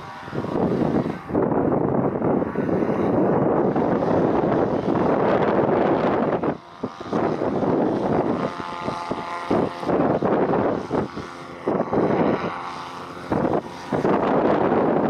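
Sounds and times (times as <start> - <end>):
hovercraft engines droning: 0.0 - 15.0
wind buffeting microphone: 0.0 - 15.0.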